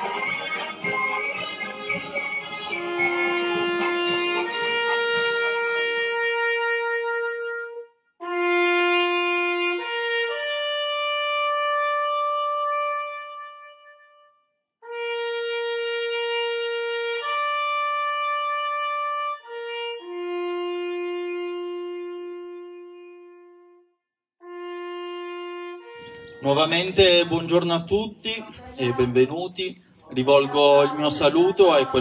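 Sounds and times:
solo trumpet slow melody: 2.4s - 27.8s.

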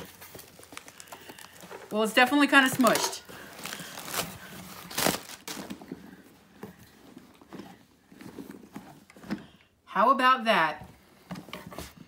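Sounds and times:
plastic packing crinkling: 0.0s - 7.6s.

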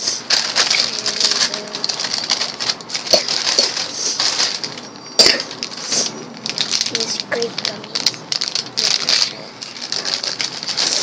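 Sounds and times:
plastic wrappers crinkling: 0.0s - 11.0s.

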